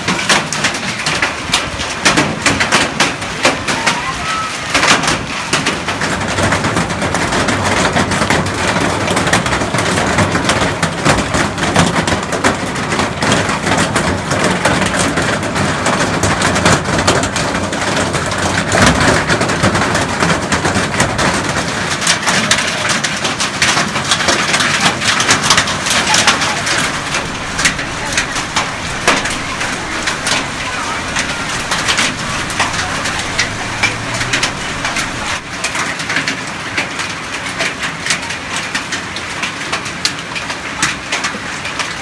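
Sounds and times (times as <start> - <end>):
hail clattering on gravel: 0.0 - 42.0
steady rush of storm: 24.4 - 35.9.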